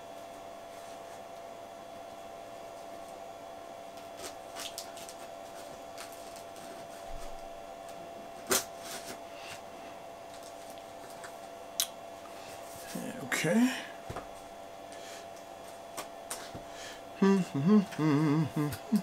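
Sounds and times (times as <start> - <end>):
faint steady hum: 0.0 - 19.0
knife slitting packing tape: 8.4 - 9.1.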